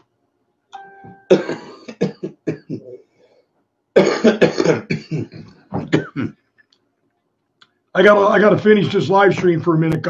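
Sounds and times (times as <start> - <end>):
man coughing: 1.3 - 3.0, 4.0 - 6.4.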